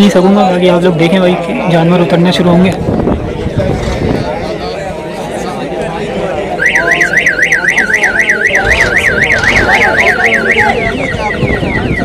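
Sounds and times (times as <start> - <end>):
electronic alarm siren warbling: 6.6 - 12.0.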